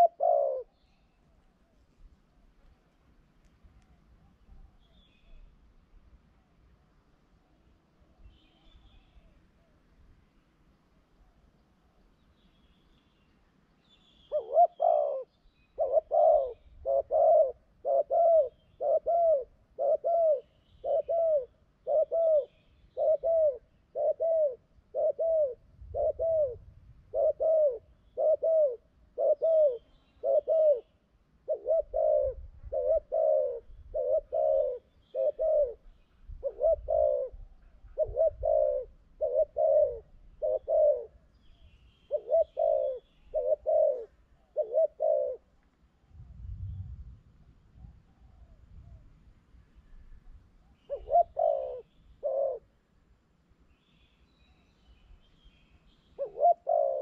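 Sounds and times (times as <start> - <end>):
dove cooing: 0.0 - 0.8, 14.2 - 41.4, 42.1 - 45.6, 50.8 - 52.7, 56.2 - 57.0.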